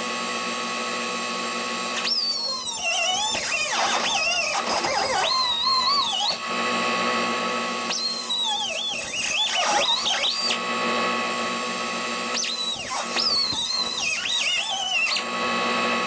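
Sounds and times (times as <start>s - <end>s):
angle grinder cutting metal: 1.0s - 16.0s.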